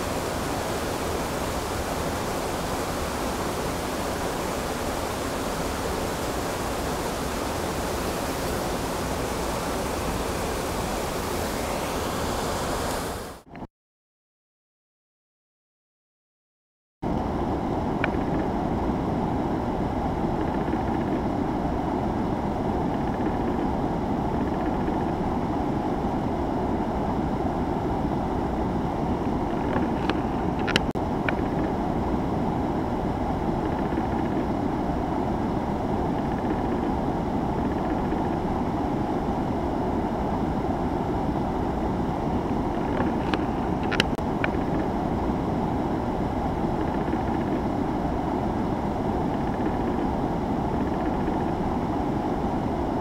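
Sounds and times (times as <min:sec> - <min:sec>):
water rushing over weir: 0:00.0 - 0:13.5.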